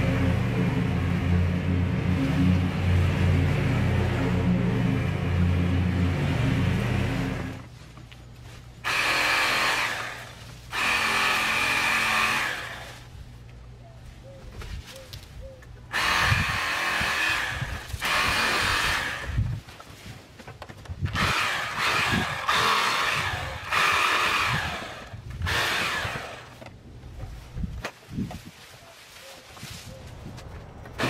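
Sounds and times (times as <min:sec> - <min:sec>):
power lawn tool revving: 0:00.0 - 0:07.7, 0:08.8 - 0:13.0, 0:15.9 - 0:19.4, 0:21.1 - 0:26.6.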